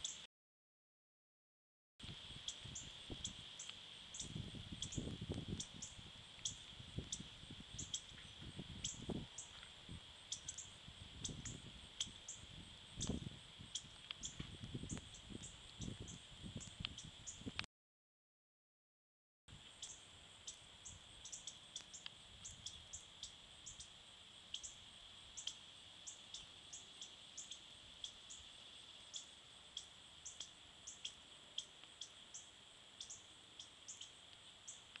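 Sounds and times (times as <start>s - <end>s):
bird chip calls: 2.4s - 8.1s.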